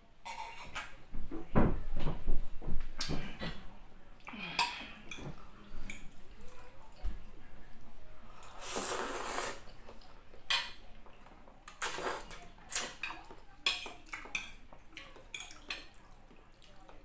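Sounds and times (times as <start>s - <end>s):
slurping noodles: 8.4s - 9.8s, 11.7s - 12.8s.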